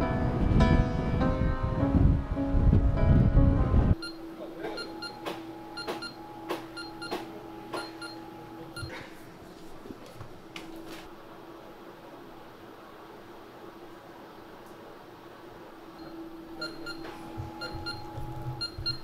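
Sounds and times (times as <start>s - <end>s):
background music: 0.0s - 4.4s
steady low hum: 0.0s - 19.0s
control panel beeps: 4.0s - 8.9s, 16.0s - 19.0s.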